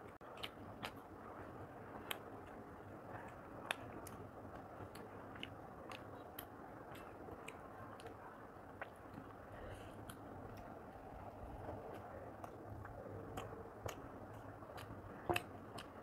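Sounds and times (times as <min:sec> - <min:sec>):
chewing with wet mouth clicks: 0:00.0 - 0:16.0
lip smacks: 0:00.1 - 0:16.0.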